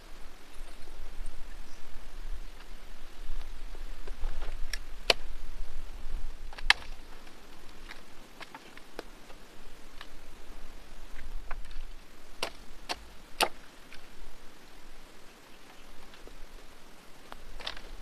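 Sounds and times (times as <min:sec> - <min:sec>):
dry branches snapping: 0:03.4 - 0:05.4, 0:06.5 - 0:10.2, 0:11.1 - 0:14.1, 0:17.3 - 0:18.0.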